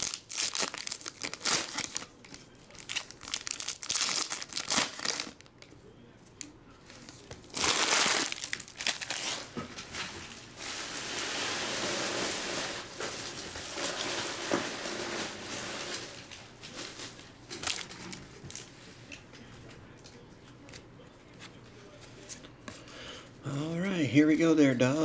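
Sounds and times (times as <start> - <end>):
foil wrappers crinkling and tearing: 0.0 - 5.7, 6.4 - 18.8.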